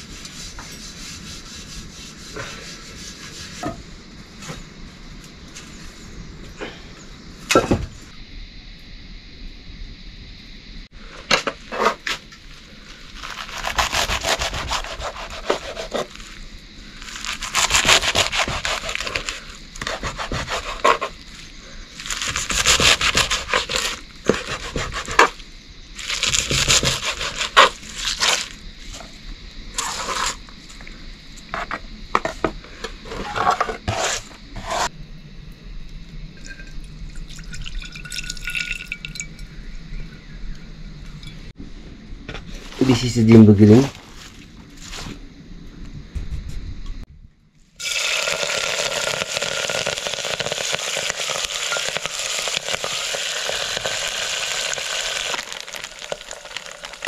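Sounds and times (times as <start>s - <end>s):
scraping and rubbing: 0.0s - 3.8s, 13.1s - 16.4s, 17.0s - 25.4s, 26.0s - 30.5s, 31.5s - 34.9s, 43.8s - 45.2s.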